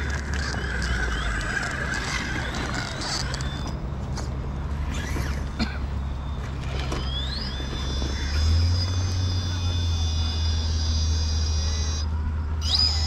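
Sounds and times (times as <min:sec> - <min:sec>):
stones clicking under tyres: 0:00.0 - 0:04.3
small electric motor whine: 0:00.0 - 0:13.0
steady low hum: 0:00.0 - 0:13.0.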